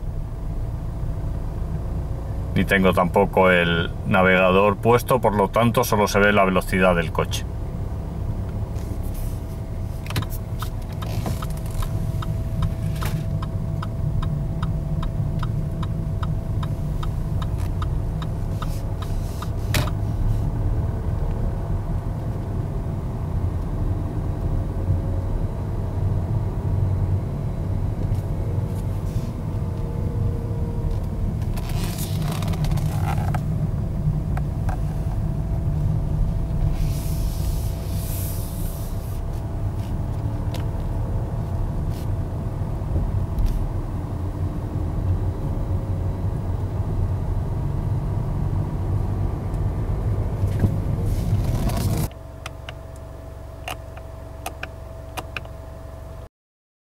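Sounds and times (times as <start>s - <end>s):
diesel engine rumble in cabin: 0.0s - 56.3s
brief hissing: 36.7s - 39.2s.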